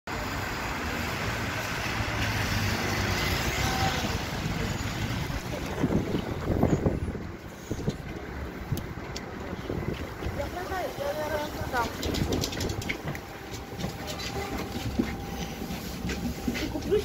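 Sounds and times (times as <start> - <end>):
bus engine humming: 0.1 - 17.0
low buffeting: 3.7 - 17.0.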